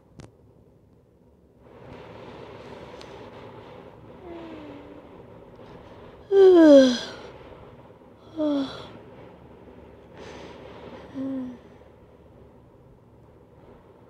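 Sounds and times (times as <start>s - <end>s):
woman groaning: 4.2s - 5.0s, 6.3s - 7.2s, 8.3s - 8.9s.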